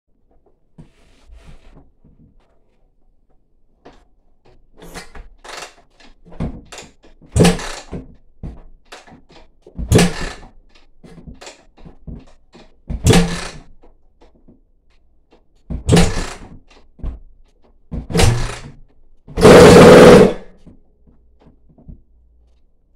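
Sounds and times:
motorcycle kick-start attempts: 4.8 - 8.1, 8.9 - 11.6, 12.6 - 13.8, 15.8 - 16.9, 18.0 - 20.7
engine turning over without firing: 18.1 - 18.8, 19.4 - 20.6.

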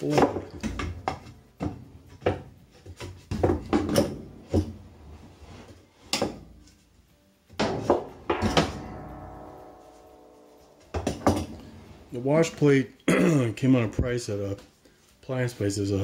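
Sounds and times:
hard metal hits ringing: 7.6 - 12.5.

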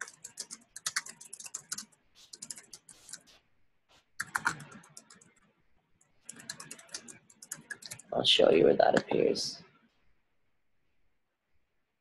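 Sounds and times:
typing on computer keyboard: 0.0 - 3.4, 4.2 - 5.5, 6.2 - 8.1.

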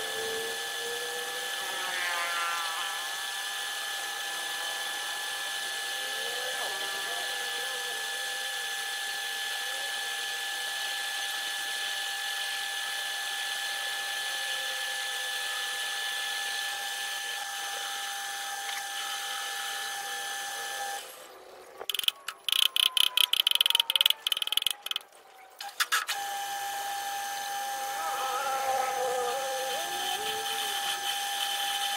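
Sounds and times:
metal lathe humming: 26.4 - 31.9.

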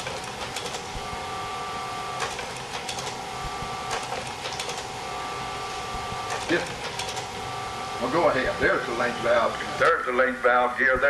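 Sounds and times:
projector mechanical clicking: 0.0 - 1.2, 2.1 - 5.0, 6.1 - 7.4
projector motor and fan hum: 0.0 - 11.0.

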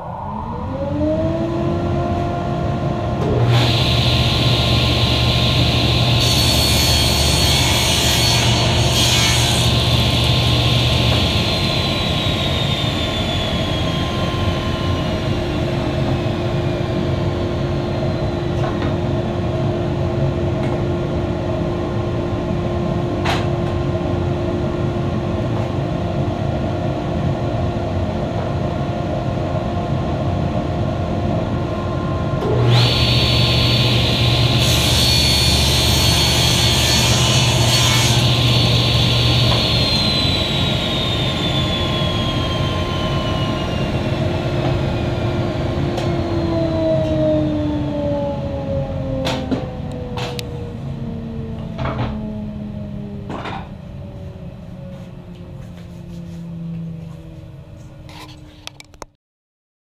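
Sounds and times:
table saw running: 3.2 - 19.6, 32.4 - 48.1
saw cutting board: 3.4 - 15.3, 32.5 - 44.9.

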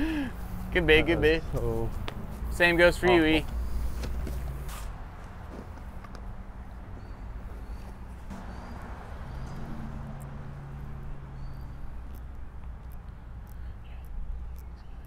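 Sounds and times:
high bird chirps: 7.0 - 12.3.

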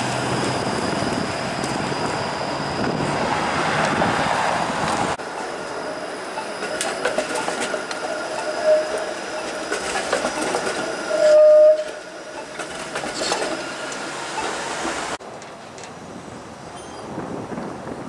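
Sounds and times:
high-pitched wheel squeals: 5.2 - 14.6
wheels clicking over track joints: 6.3 - 16.0.

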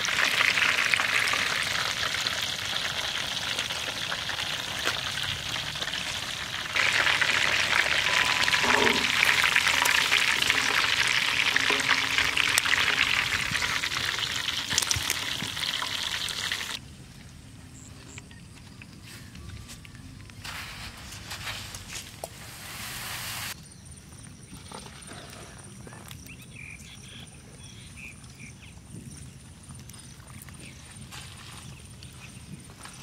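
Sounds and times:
hot oil sizzling: 0.0 - 16.8, 22.5 - 23.6.

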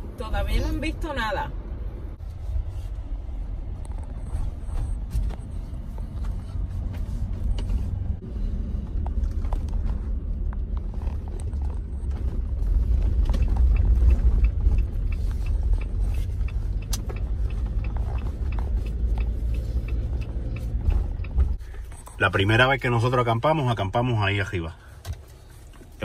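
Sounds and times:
car engine and tyres rumbling: 0.0 - 26.0
light regular ticking: 11.4 - 22.5.

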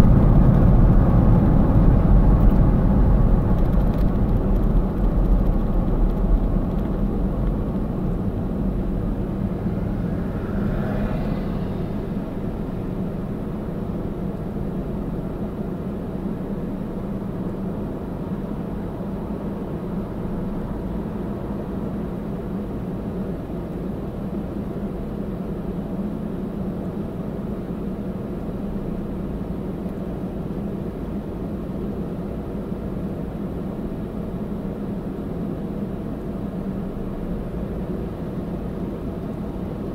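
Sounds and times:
faint rising whine: 0.0 - 14.5
car idling hum: 0.0 - 39.9
car road and engine noise: 0.0 - 39.9.

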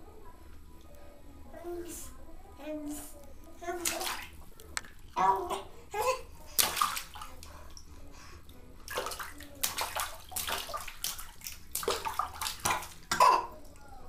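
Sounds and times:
bathwater splashing: 3.8 - 5.7, 6.5 - 7.8, 8.8 - 13.6.

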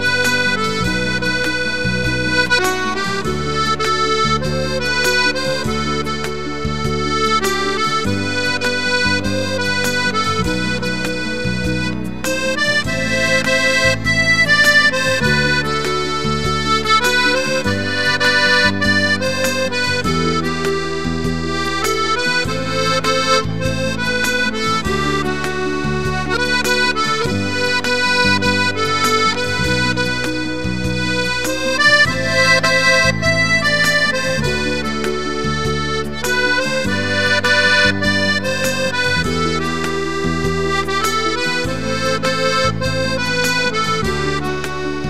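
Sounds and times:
piano accordion playing a melody: 0.0 - 45.0.

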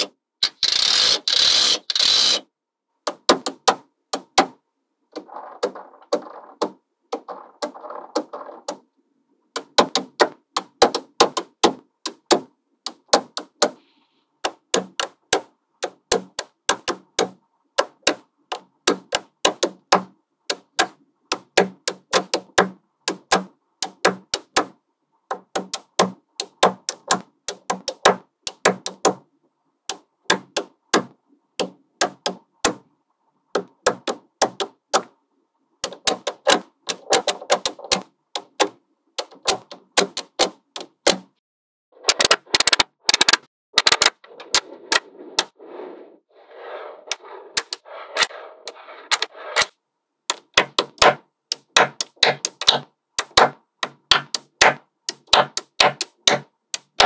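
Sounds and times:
magnetic balls clicking together: 14.4 - 24.7, 25.3 - 29.2, 33.6 - 35.1, 35.8 - 41.2, 50.3 - 57.0.

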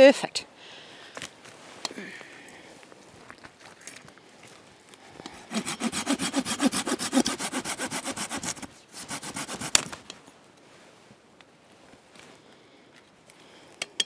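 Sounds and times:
hand saw cutting branch: 5.3 - 10.0.

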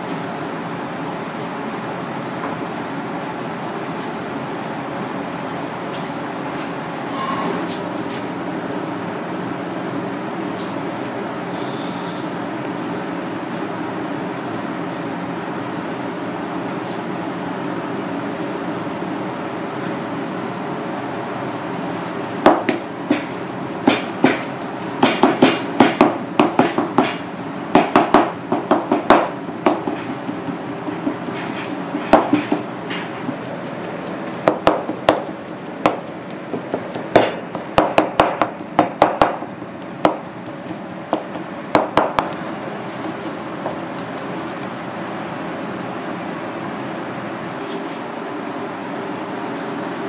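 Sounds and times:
steady background hum: 0.0 - 50.0
knife chopping on cutting board: 22.5 - 33.4, 34.3 - 42.4.

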